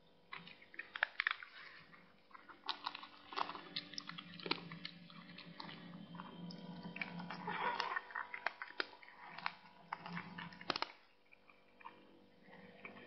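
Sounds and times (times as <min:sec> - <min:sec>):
faint steady hum: 0:00.0 - 0:13.0
twine crackling clicks: 0:02.4 - 0:12.0.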